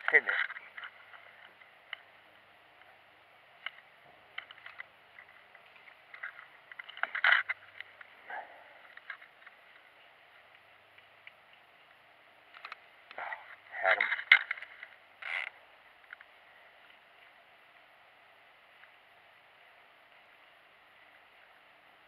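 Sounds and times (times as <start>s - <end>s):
fishing line clicks and rustles: 0.0s - 2.2s, 3.6s - 17.4s
faint steady hiss: 0.0s - 22.0s.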